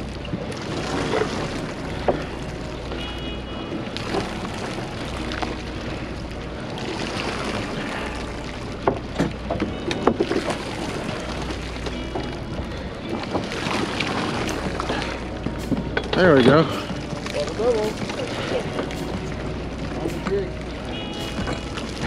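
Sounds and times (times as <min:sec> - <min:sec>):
wind and sea noise: 0:00.0 - 0:22.0
low rumble: 0:10.4 - 0:22.0.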